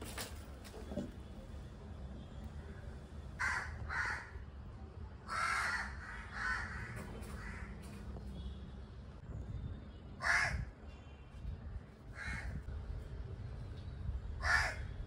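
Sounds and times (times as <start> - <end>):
crow cawing: 3.4 - 4.4, 5.3 - 7.8, 10.2 - 10.7, 12.2 - 12.6, 14.4 - 14.9.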